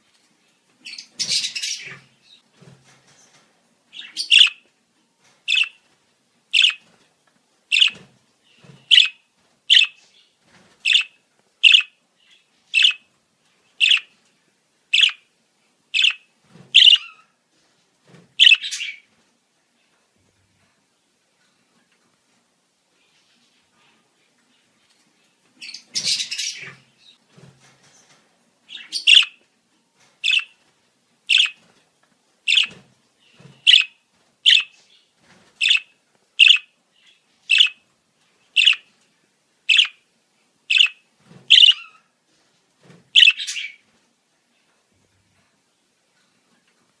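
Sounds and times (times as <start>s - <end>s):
budgerigar high chirps: 4.0s - 4.6s, 5.5s - 5.8s, 6.6s - 6.8s, 7.7s - 8.0s, 8.9s - 10.0s, 10.9s - 12.0s, 12.8s - 13.0s, 13.8s - 14.1s, 15.0s - 15.2s, 16.0s - 16.2s, 16.8s - 17.3s, 18.4s - 19.0s, 28.7s - 29.4s, 30.2s - 30.5s, 31.3s - 31.6s, 32.5s - 32.8s, 33.6s - 34.8s, 35.6s - 36.7s, 37.5s - 37.8s, 38.6s - 38.9s, 39.7s - 40.0s, 40.7s - 42.0s, 43.2s - 43.8s.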